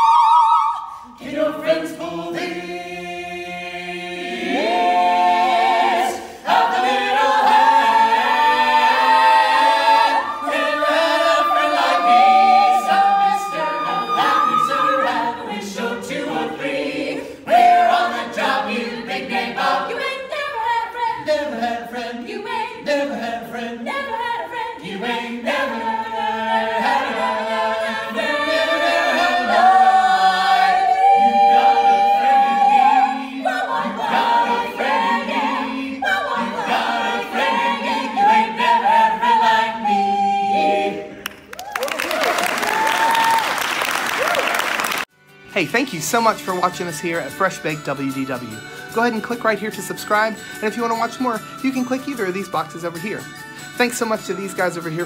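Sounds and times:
choir singing in harmony: 0:00.0 - 0:41.6.

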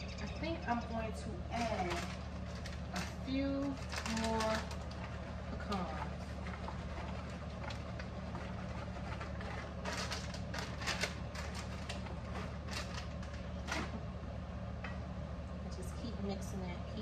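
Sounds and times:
steady low hum: 0:00.0 - 0:17.0
plastic bag crinkling: 0:01.5 - 0:14.0.

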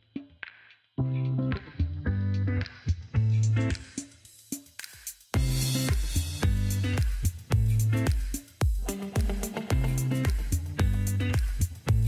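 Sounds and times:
music with drums and guitar: 0:00.0 - 0:12.0.

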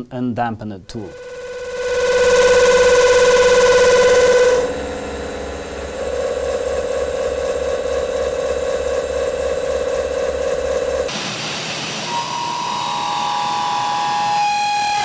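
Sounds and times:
milling cutter chatter ringing: 0:00.9 - 0:05.2
pulsing low rumble: 0:00.9 - 0:11.1.

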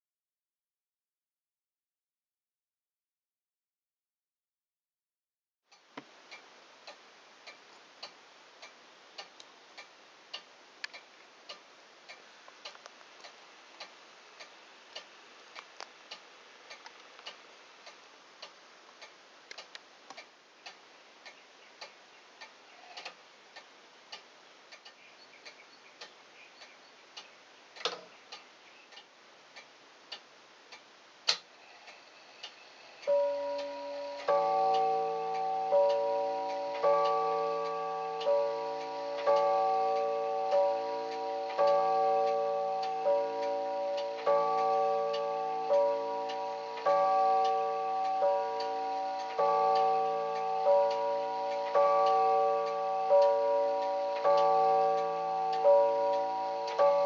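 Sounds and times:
clock ticking: 0:05.7 - 0:57.0
clock chime rods striking: 0:33.1 - 0:57.0.

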